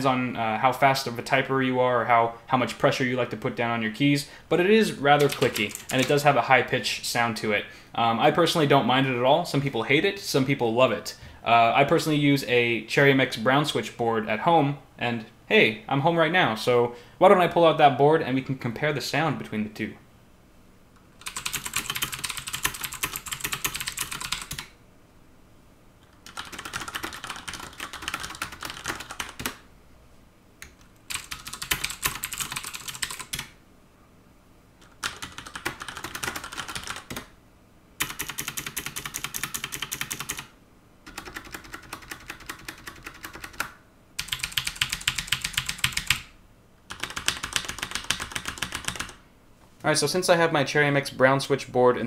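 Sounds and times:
fast mechanical keyboard typing: 0:05.0 - 0:06.3, 0:21.2 - 0:24.7, 0:26.2 - 0:29.6, 0:31.1 - 0:33.6, 0:34.8 - 0:37.3, 0:38.0 - 0:40.5, 0:41.1 - 0:46.3, 0:46.9 - 0:49.2.

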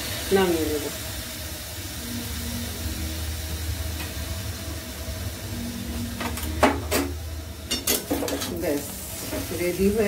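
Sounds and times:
gas burner hissing: 0:00.0 - 0:10.0.

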